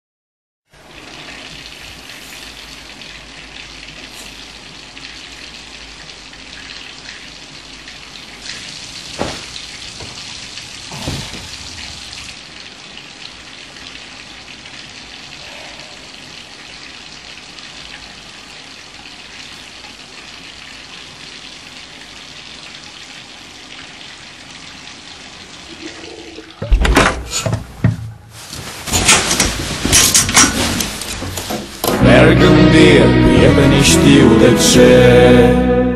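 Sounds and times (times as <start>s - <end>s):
running water hissing: 0.7s - 26.6s.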